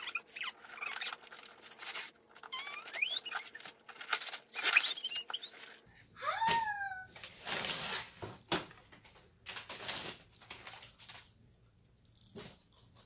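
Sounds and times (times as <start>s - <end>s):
wrapping paper tearing: 0.0s - 5.8s, 7.2s - 8.2s, 9.5s - 11.3s.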